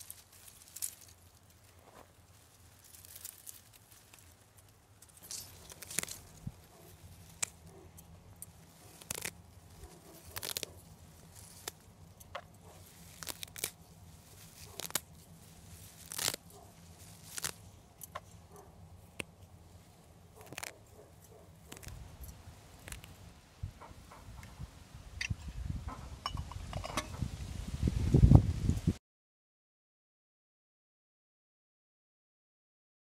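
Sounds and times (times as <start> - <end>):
leaves rustling: 0.0 - 29.0
herb stems snapping: 2.8 - 18.4, 19.1 - 19.5, 20.3 - 23.2.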